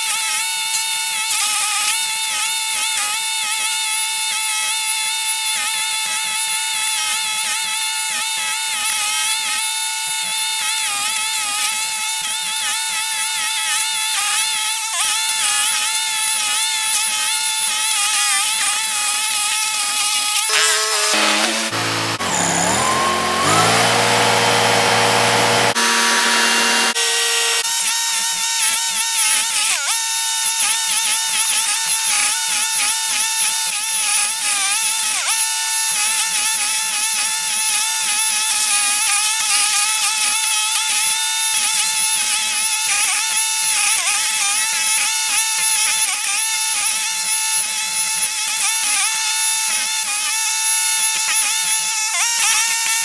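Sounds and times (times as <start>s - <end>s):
stump grinder grinding wood: 8.5s - 30.2s.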